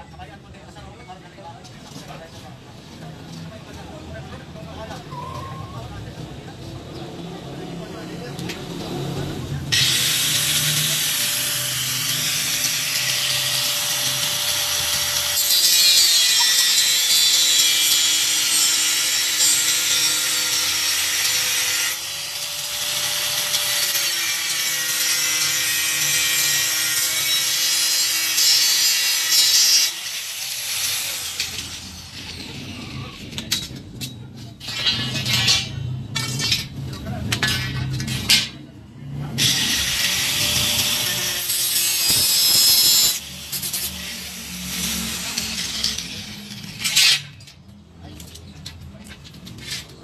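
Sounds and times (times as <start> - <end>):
angle grinder cutting steel: 8.6 - 33.6, 34.6 - 47.5.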